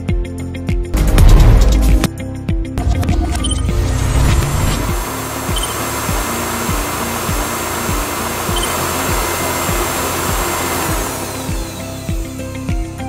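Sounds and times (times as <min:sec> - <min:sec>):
background music with beat: 0:00.0 - 0:13.0
hair dryer blowing: 0:04.4 - 0:13.0.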